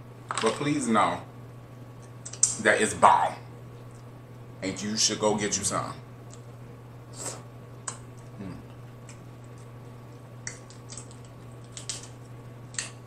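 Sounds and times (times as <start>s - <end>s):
steady low hum: 0.0s - 13.0s
crab shell cracking: 7.8s - 13.0s.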